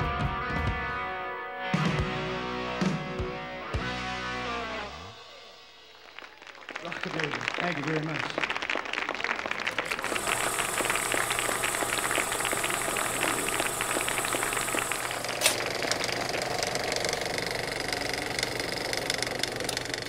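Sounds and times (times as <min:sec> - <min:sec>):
film projector clattering: 0:09.8 - 0:20.0
low motor hum: 0:09.9 - 0:20.0
sharp projector click: 0:09.9 - 0:20.0.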